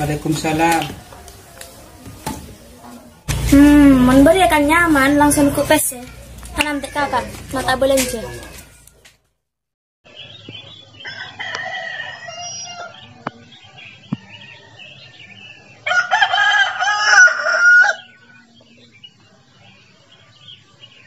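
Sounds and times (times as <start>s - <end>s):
rooster crowing: 11.0s - 13.0s, 14.2s - 18.2s.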